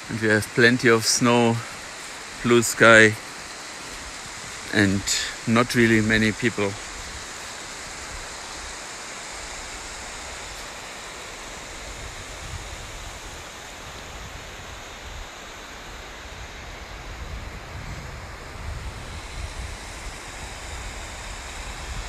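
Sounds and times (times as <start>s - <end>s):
wind rumble on microphone: 11.8s - 22.0s.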